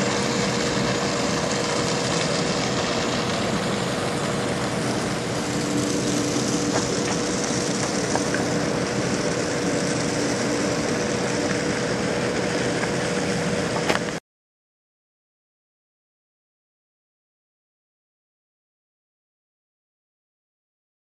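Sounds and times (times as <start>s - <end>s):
machinery hum with constant tone: 0.0s - 14.2s.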